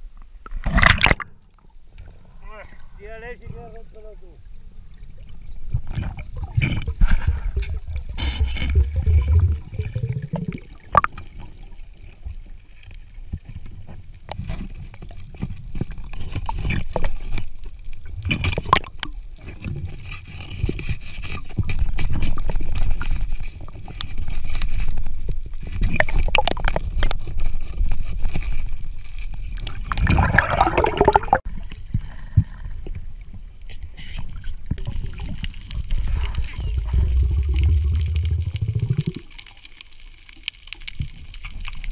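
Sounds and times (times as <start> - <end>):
muffled underwater rumble: 4.3 - 14.1, 18.0 - 39.6
clicks and scrapes: 18.2 - 30.1.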